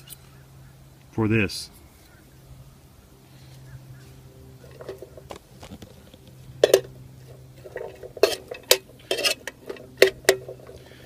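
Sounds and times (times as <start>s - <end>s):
metal spoon scraping pan: 6.6s - 10.8s.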